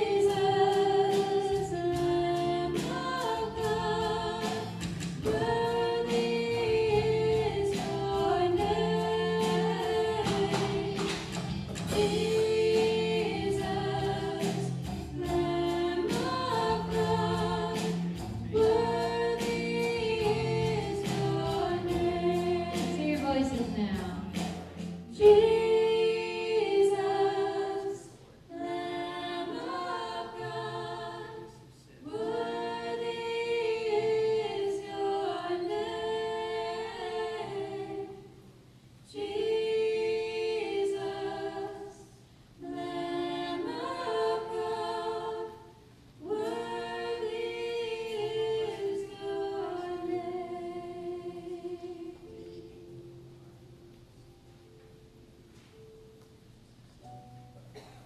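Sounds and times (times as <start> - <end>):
group singing worship chorus: 0.0 - 52.8.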